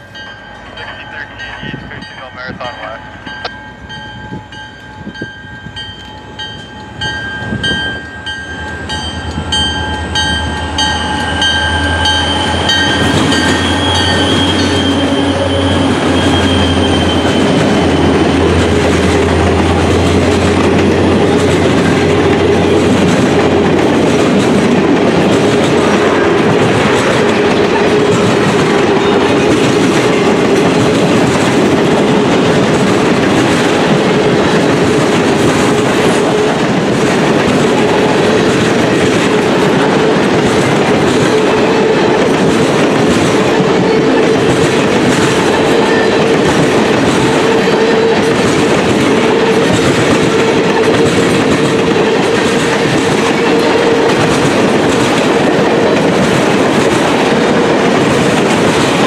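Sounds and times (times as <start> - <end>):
repeating high ringing tone: 0.0 - 18.2
diesel locomotive engine rumble: 0.0 - 59.0
train wheels on rails: 0.0 - 59.0.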